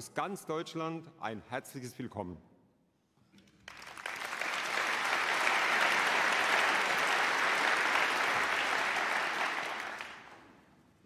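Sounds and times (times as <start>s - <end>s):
audience applauding: 3.7s - 10.6s.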